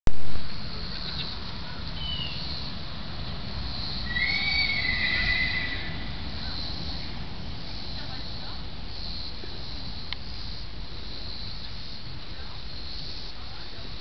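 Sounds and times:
low outdoor rumble: 0.1s - 14.0s
horse whinnying: 4.0s - 6.1s.

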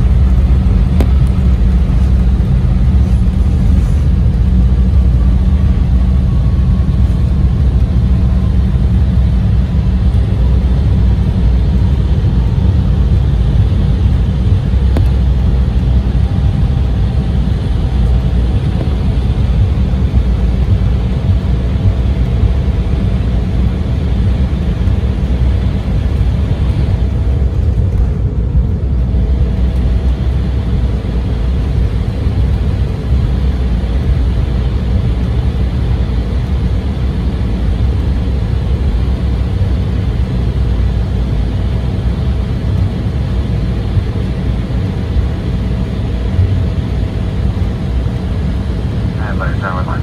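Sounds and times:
aircraft cabin rumble: 0.0s - 50.0s
faint steady whine: 0.0s - 50.0s.

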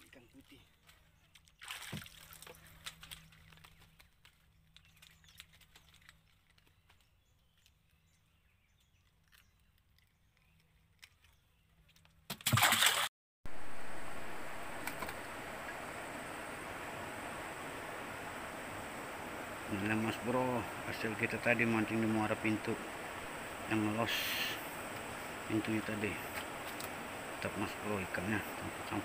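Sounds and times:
steady hiss: 13.5s - 29.0s.

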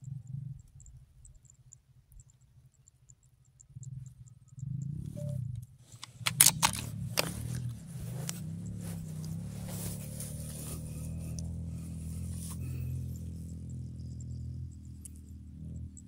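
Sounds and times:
background music with low drone: 5.0s - 5.5s
handling clicks and rattles: 5.9s - 11.5s.

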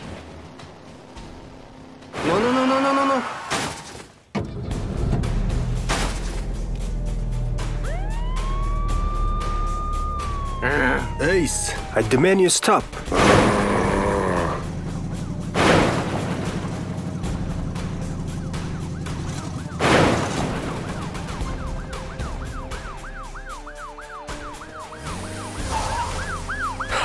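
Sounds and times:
crashes of scattering debris: 3.4s - 6.7s, 14.7s - 21.6s
background music: 4.4s - 27.0s
police siren sweeping: 7.5s - 15.6s, 16.3s - 27.0s.

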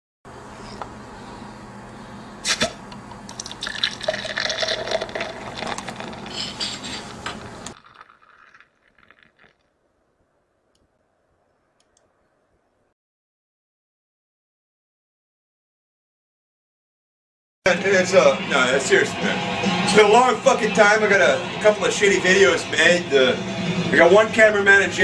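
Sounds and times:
liquid pouring and splashing: 3.3s - 9.8s.

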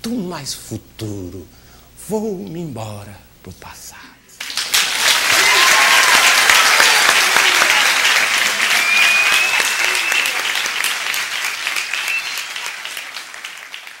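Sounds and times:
audience applauding: 4.4s - 14.0s
long high whistle: 7.9s - 13.0s.

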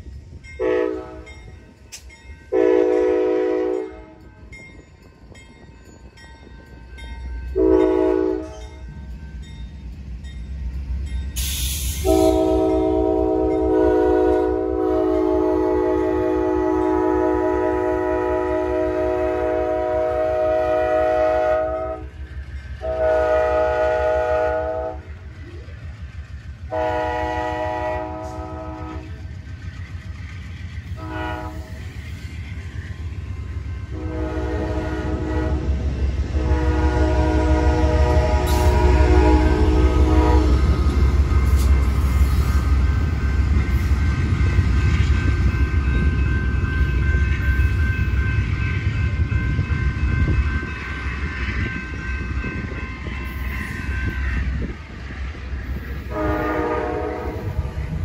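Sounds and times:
train rumbling past: 0.0s - 58.0s
locomotive horn blasts: 0.6s - 1.4s, 2.5s - 4.2s, 7.5s - 8.6s, 12.0s - 22.1s, 22.8s - 25.2s, 26.7s - 29.2s, 31.0s - 31.8s, 33.9s - 41.7s, 56.1s - 57.9s.

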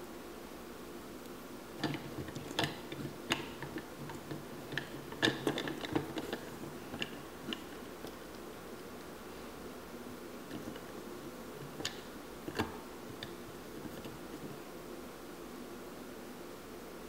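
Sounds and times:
plastic toy clicks and taps: 11.6s - 14.6s.

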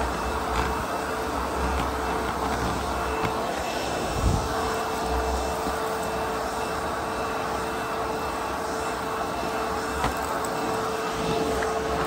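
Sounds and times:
vacuum cleaner motor whine: 0.0s - 12.0s
vacuum floor tool on carpet: 0.0s - 12.0s.

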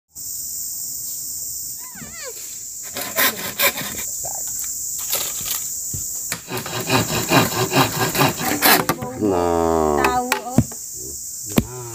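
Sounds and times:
forest insects droning: 0.1s - 11.9s
knocks and rubbing of wood: 5.1s - 9.2s.

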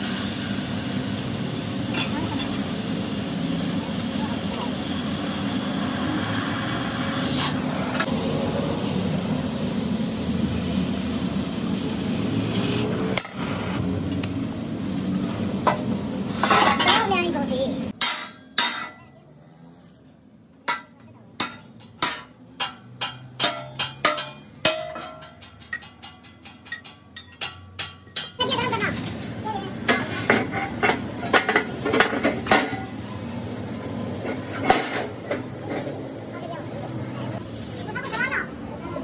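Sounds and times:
arc welding crackling: 0.0s - 13.0s, 28.4s - 29.6s, 32.5s - 39.0s.

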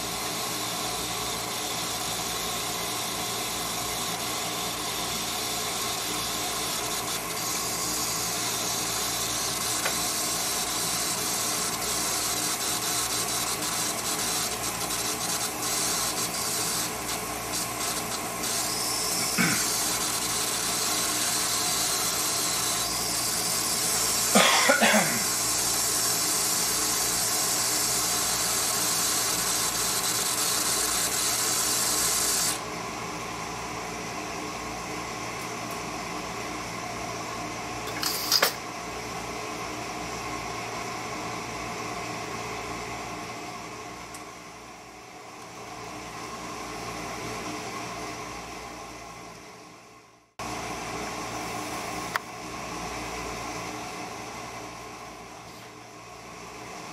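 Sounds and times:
pressure cooker venting steam: 0.0s - 32.7s, 37.9s - 38.6s.

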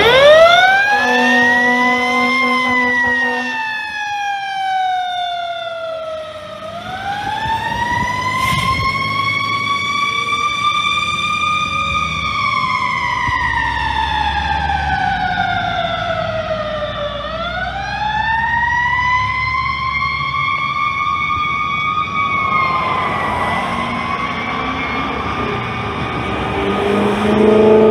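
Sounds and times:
truck engine rumbling: 0.0s - 4.0s, 5.7s - 27.9s
siren wailing: 0.0s - 27.9s.

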